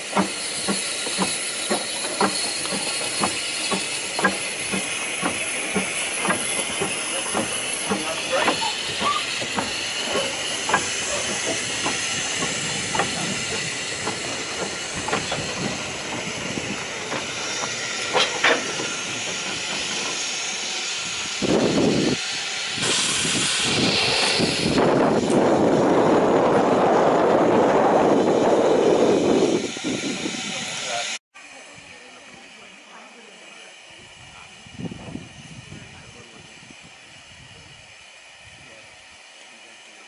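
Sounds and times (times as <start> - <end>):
steady rush of steam: 0.0 - 40.0
steam locomotive hissing steam: 0.0 - 40.0
short blasts of steam: 20.1 - 26.2.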